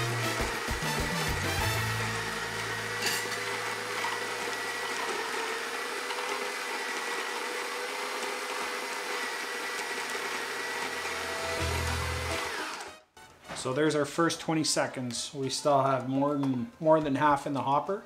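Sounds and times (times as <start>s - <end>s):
coffee grinder motor whine: 0.0s - 13.0s.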